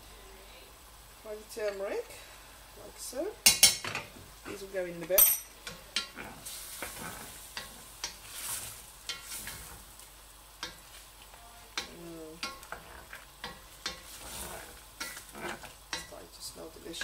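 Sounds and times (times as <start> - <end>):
chicken sizzling in oil: 5.6 - 17.0
wooden spoon scraping pan: 6.0 - 9.9, 11.8 - 16.6.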